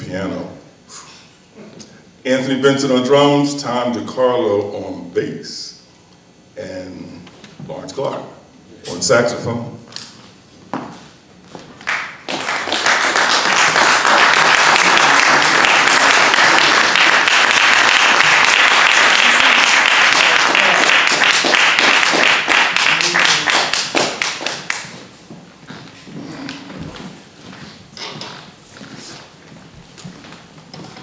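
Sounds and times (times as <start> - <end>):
audience applauding: 11.8 - 25.0.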